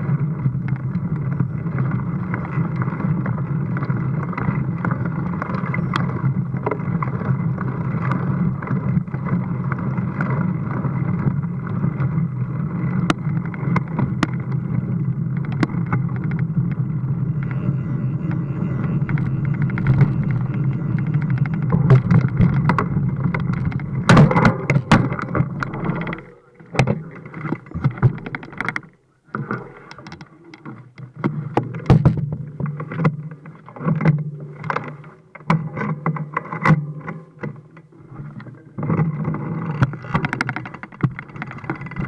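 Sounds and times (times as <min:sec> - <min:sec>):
bike rattling over rough streets: 0:00.0 - 0:42.0.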